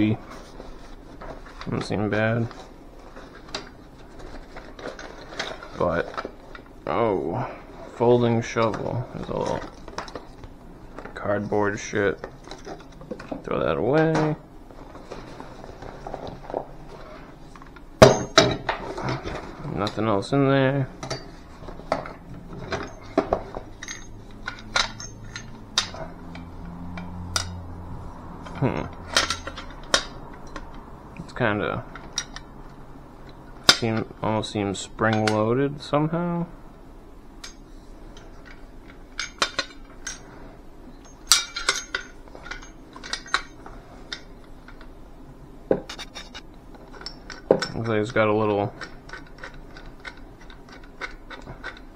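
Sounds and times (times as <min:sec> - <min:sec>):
folding shovel metal clinks: 0:22.0 - 0:26.2, 0:28.4 - 0:30.7, 0:41.0 - 0:44.3.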